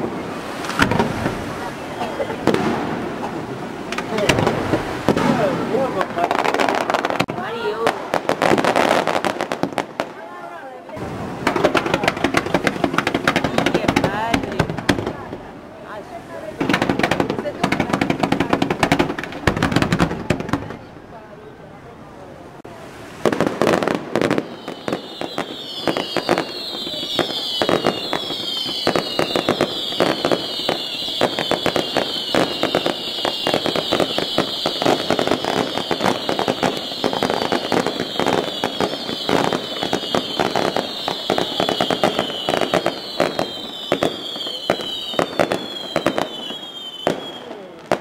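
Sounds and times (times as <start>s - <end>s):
fireworks bangs: 0.0s - 21.5s, 22.6s - 48.0s
fireworks whistles falling in pitch: 23.6s - 48.0s.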